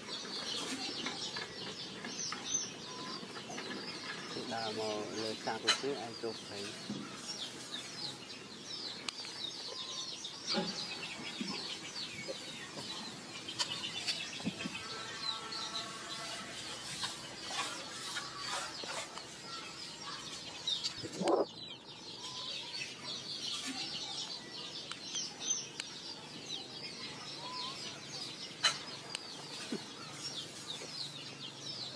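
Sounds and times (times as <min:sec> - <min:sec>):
birds chirping: 0:00.0 - 0:31.9.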